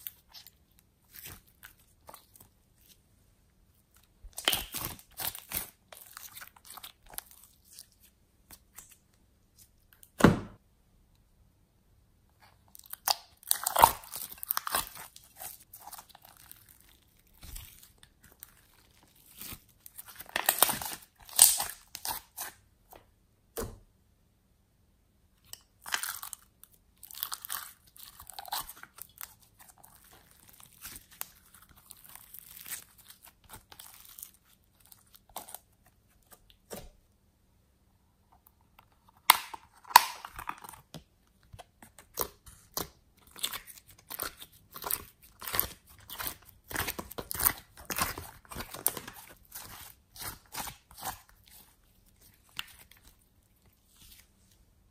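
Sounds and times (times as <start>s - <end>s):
slime clicking and squishing: 0.0s - 3.0s, 3.9s - 9.0s, 12.8s - 22.6s, 25.4s - 36.8s, 38.7s - 54.2s
sharp thump: 10.2s - 10.6s.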